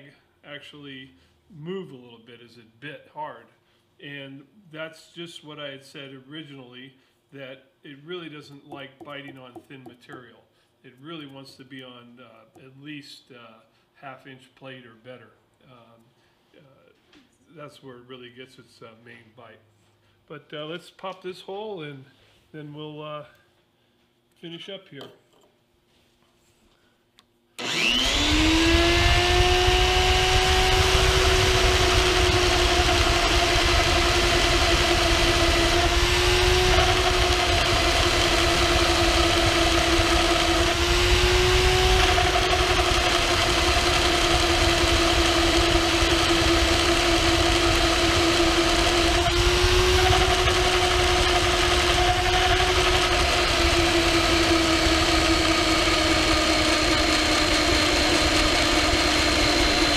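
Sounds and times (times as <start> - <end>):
drill motor cutting steel: 27.6 - 59.9.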